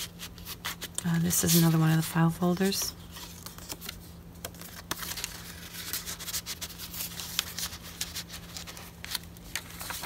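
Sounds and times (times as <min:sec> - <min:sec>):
faint steady hum: 0:00.0 - 0:10.0
paper rustling: 0:00.0 - 0:10.0.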